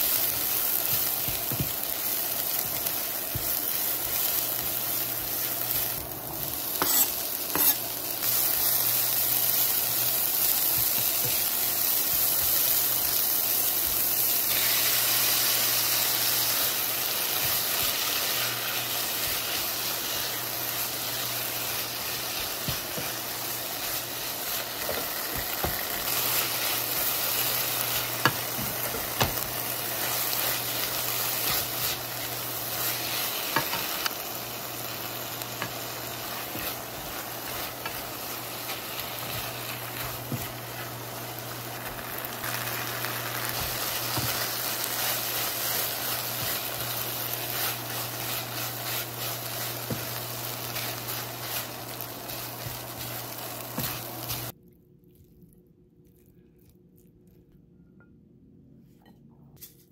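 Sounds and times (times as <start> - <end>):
food sizzling in a wok: 0.0 - 54.6
spatula scraping and tapping pan: 0.9 - 1.8, 6.7 - 7.9, 21.8 - 34.1, 35.4 - 41.0, 43.5 - 54.5.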